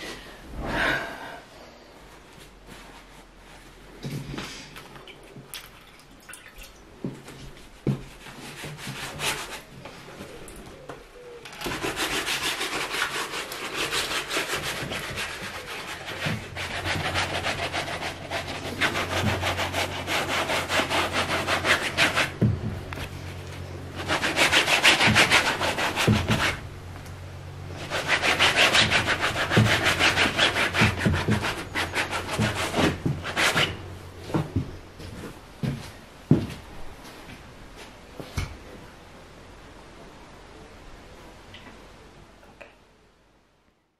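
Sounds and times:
rag scrubbing canvas: 0:11.6 - 0:23.4, 0:24.0 - 0:26.6, 0:27.7 - 0:33.8.

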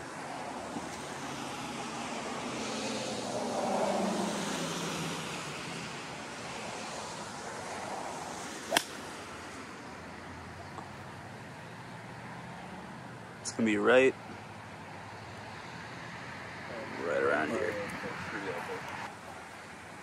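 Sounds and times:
road traffic noise: 0:00.0 - 0:20.0
golf club striking ball: 0:08.7 - 0:09.2.

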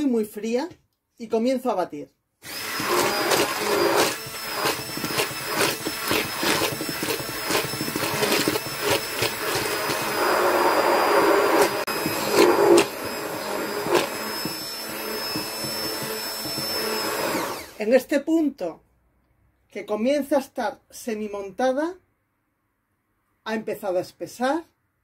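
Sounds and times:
immersion blender whipping cream: 0:02.4 - 0:17.9.

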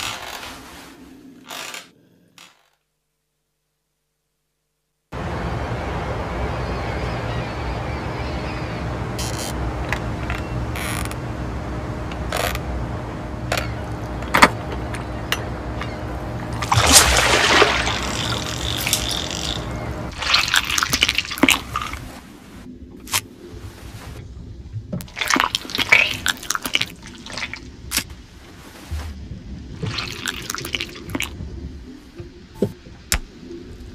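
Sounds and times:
steady low rumble: 0:05.1 - 0:33.9
water splashing: 0:16.3 - 0:24.2, 0:24.8 - 0:33.7
water dripping: 0:16.4 - 0:22.0, 0:24.9 - 0:28.1, 0:29.8 - 0:31.6.

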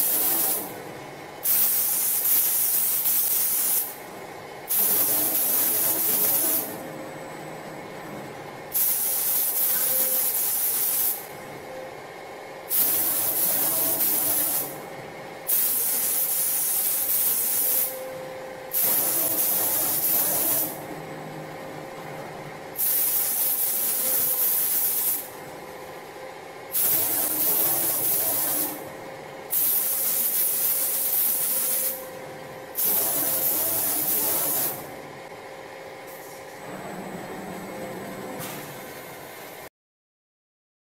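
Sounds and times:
spray gun hissing in bursts: 0:00.0 - 0:00.7, 0:01.4 - 0:04.0, 0:04.7 - 0:06.7, 0:08.7 - 0:11.3, 0:12.7 - 0:14.8, 0:15.5 - 0:17.9, 0:18.7 - 0:20.8, 0:22.8 - 0:25.3, 0:26.7 - 0:28.8, 0:29.5 - 0:32.0, 0:32.7 - 0:34.8
steady machine hum: 0:00.0 - 0:39.7.

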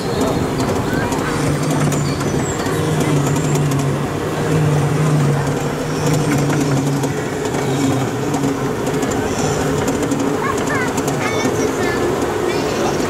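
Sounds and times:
ride vehicle motor hum: 0:00.0 - 0:13.0.

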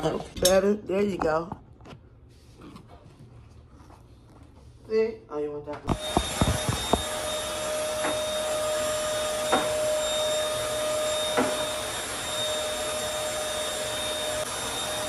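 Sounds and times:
vacuum cleaner whining: 0:05.9 - 0:15.0.

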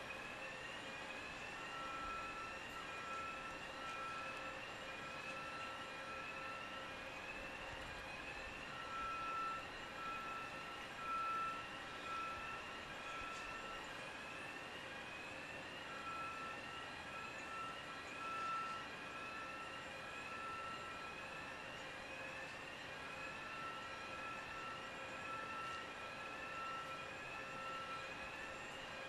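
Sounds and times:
pulsing high alarm tone: 0:08.7 - 0:13.8, 0:15.9 - 0:19.6, 0:23.3 - 0:28.6.

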